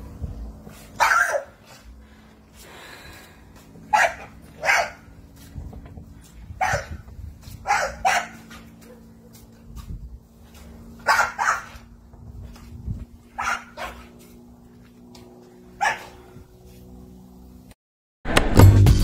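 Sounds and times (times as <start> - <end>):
dog barking: 1.0 - 1.8, 3.9 - 5.1, 6.6 - 7.0, 7.6 - 9.5, 11.0 - 11.9, 13.4 - 14.1, 15.8 - 16.2.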